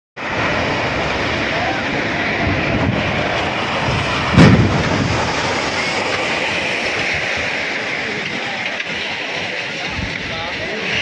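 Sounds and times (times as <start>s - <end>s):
heavy rumble: 0.2s - 11.0s
loud crash of collapsing concrete: 2.4s - 9.4s.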